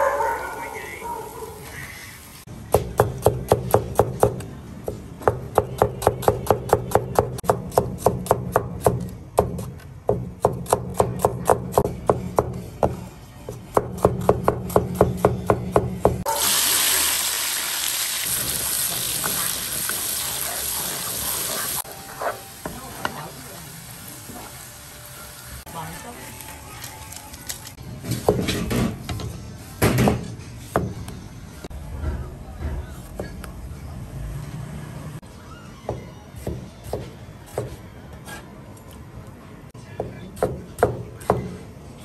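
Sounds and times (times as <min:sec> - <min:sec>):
food sizzling in hot oil: 0:16.3 - 0:25.7.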